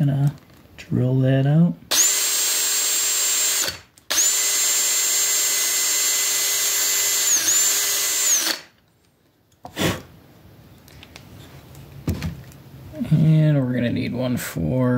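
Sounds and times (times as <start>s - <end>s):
cordless drill whining: 1.9s - 8.8s.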